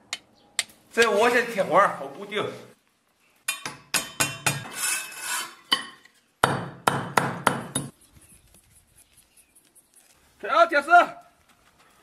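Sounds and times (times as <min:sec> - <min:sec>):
hammer striking iron wire: 0:03.5 - 0:04.7, 0:05.7 - 0:07.9.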